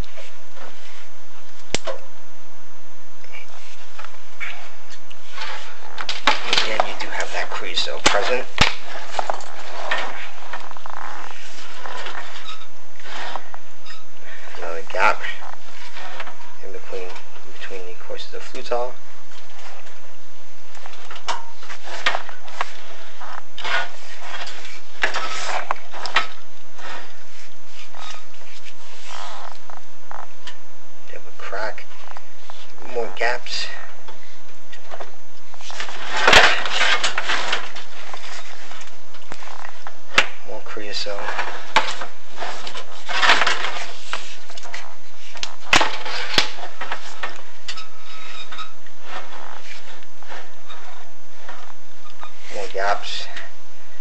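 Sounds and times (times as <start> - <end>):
cable scraping flue tiles: 3.6 - 20.0, 20.7 - 30.6, 34.1 - 53.5.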